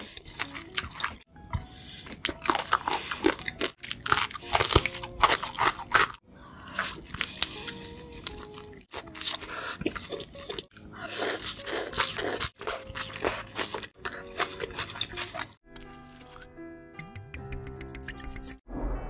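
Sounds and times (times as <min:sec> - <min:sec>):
wet chewing mouth sounds: 0:00.0 - 0:15.6
crunching fried food: 0:02.2 - 0:15.3.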